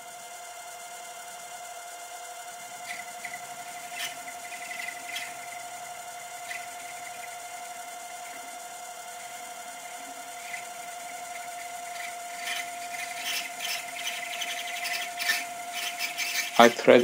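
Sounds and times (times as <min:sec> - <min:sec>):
lathe drive whine: 0:00.0 - 0:17.0
cutting tool scraping metal: 0:02.8 - 0:07.4, 0:09.9 - 0:17.0.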